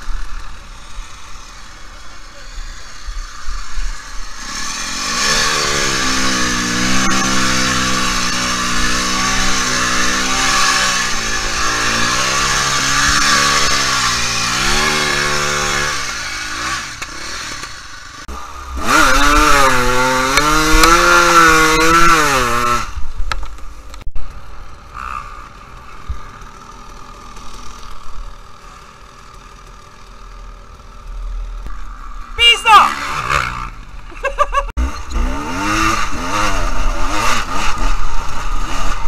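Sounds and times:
dirt bike engine revving: 0:00.0 - 0:23.1, 0:24.8 - 0:39.0
distant engine: 0:00.0 - 0:39.0.

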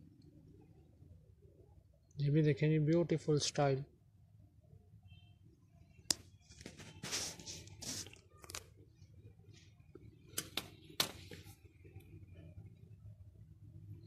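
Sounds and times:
handling rustles: 0:06.4 - 0:08.7.

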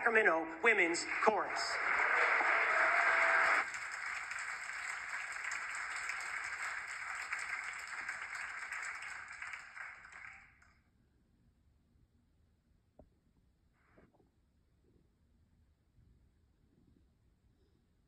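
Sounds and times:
audience applause: 0:00.7 - 0:10.6.

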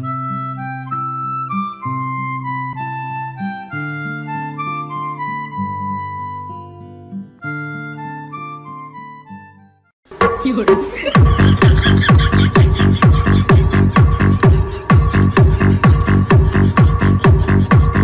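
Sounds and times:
reedy harmonica-like melody: 0:00.0 - 0:09.9.

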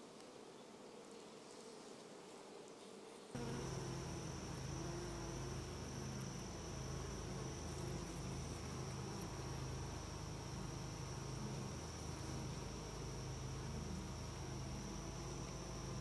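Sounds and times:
honeybees buzzing: 0:03.3 - 0:16.0.

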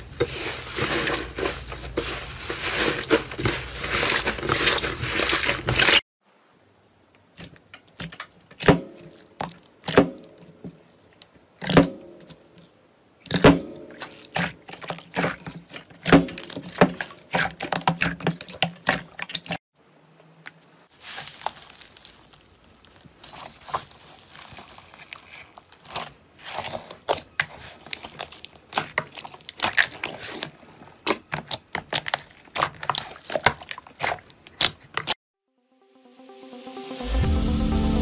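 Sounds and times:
slime squelching and popping: 0:13.2 - 0:19.6, 0:21.0 - 0:35.2.

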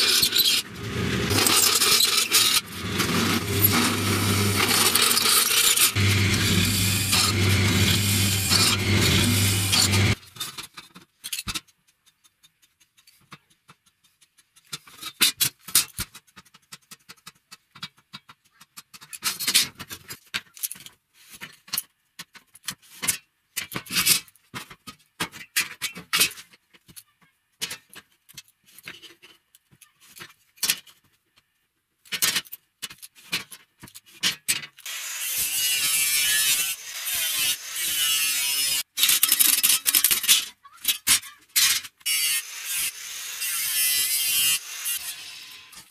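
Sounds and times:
harsh power tool noise: 0:00.0 - 0:10.2, 0:34.8 - 0:38.9, 0:42.0 - 0:45.9.

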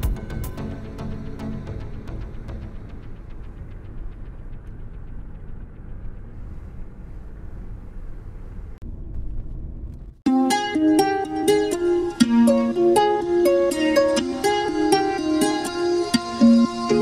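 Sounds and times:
car interior road rumble: 0:02.8 - 0:10.2
plucked-string music: 0:10.3 - 0:17.0.

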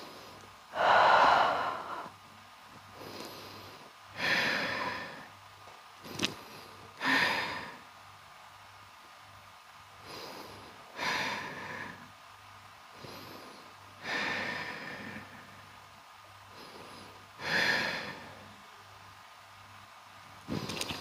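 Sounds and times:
person breathing deeply: 0:00.0 - 0:02.2, 0:02.9 - 0:05.3, 0:06.1 - 0:07.8, 0:10.0 - 0:12.1, 0:12.9 - 0:15.8, 0:16.5 - 0:18.6.

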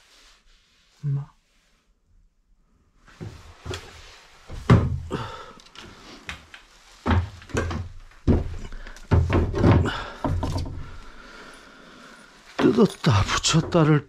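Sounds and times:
heavy thumps and knocks: 0:04.5 - 0:05.3, 0:07.0 - 0:11.2.

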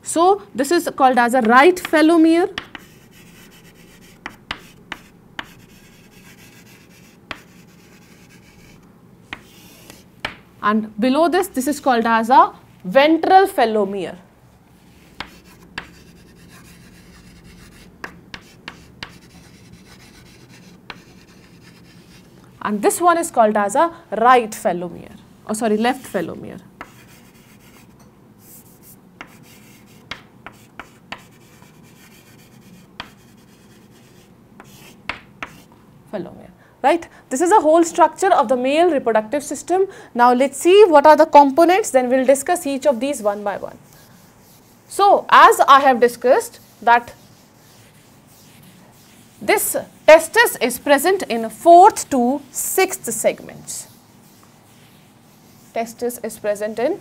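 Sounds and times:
chalk tapping on chalkboard: 0:01.4 - 0:10.5, 0:15.0 - 0:22.3, 0:26.8 - 0:35.7, 0:46.6 - 0:49.4
chalk scraping: 0:02.6 - 0:10.1, 0:14.9 - 0:22.4, 0:25.8 - 0:35.7, 0:43.3 - 0:44.9, 0:46.0 - 0:57.0.

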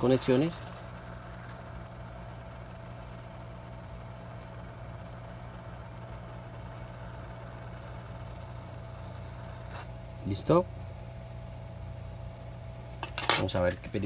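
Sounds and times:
hot air gun hum and hiss: 0:00.0 - 0:10.1.

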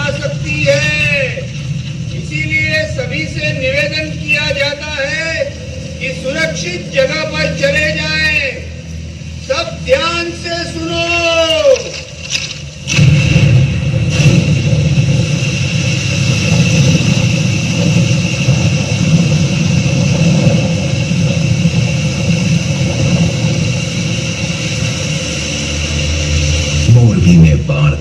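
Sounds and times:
rumbling rush of floodwater: 0:00.0 - 0:28.0
sudden crash: 0:11.5 - 0:28.0.

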